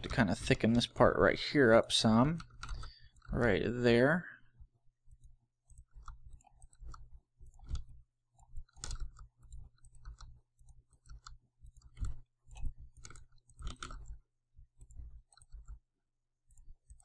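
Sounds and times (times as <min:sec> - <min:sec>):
mouse and keyboard clicks: 0:02.3 - 0:03.5, 0:05.1 - 0:14.2, 0:14.8 - 0:15.8, 0:16.5 - 0:17.0.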